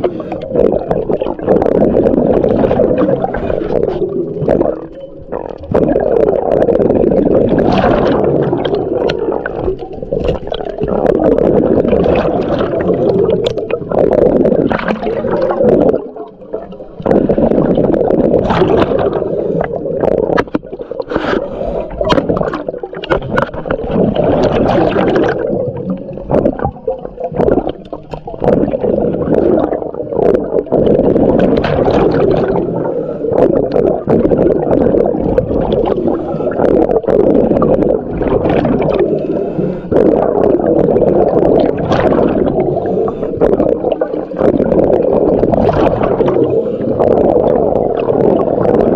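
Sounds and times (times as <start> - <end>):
muffled underwater rush: 0.0 - 48.9
diver clicks and knocks: 22.0 - 28.8.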